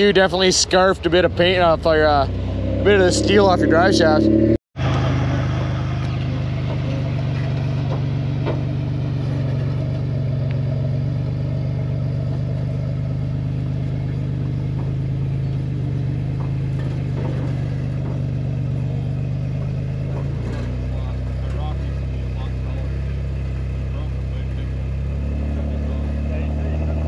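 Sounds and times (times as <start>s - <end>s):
engine running at low revs: 0.0s - 27.0s.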